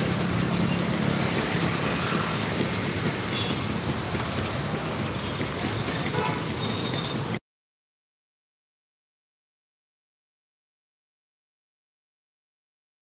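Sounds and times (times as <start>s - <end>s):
road and wind noise: 0.0s - 7.4s.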